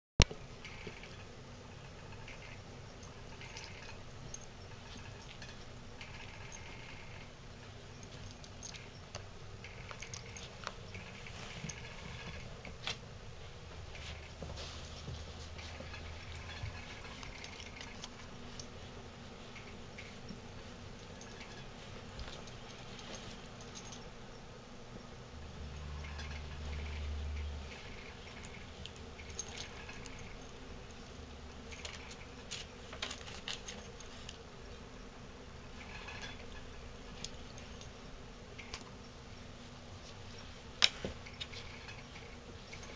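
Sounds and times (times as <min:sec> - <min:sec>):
low steady hum: 0:00.2 - 0:42.9
soft scuffling and rustling: 0:10.2 - 0:24.2.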